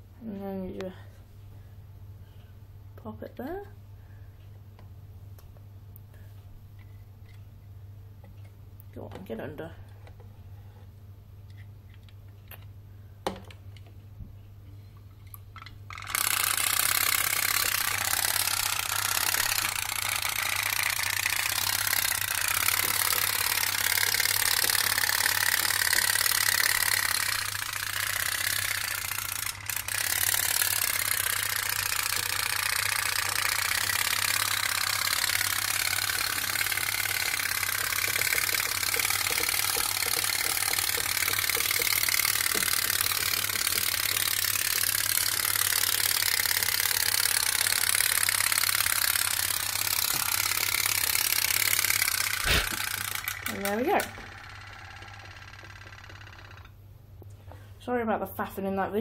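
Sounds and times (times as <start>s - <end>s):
pop-pop boat putt-putt rattle: 35.9s - 44.7s.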